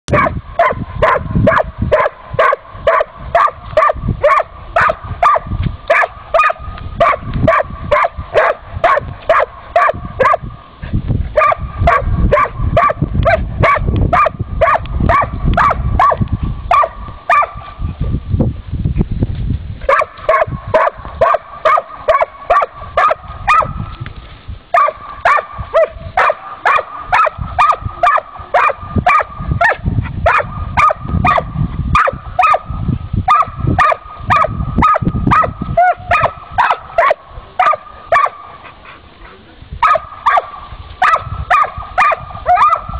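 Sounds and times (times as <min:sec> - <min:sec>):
dog barking: 0:00.1 - 0:10.4, 0:11.4 - 0:17.6, 0:19.9 - 0:23.7, 0:24.8 - 0:32.7, 0:33.3 - 0:38.5, 0:39.8 - 0:42.9.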